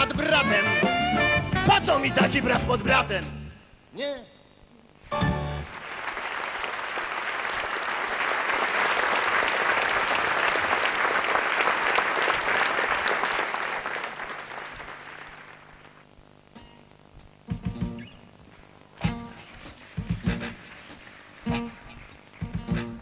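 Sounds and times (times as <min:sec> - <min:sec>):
audience applauding: 0:05.3 - 0:16.1.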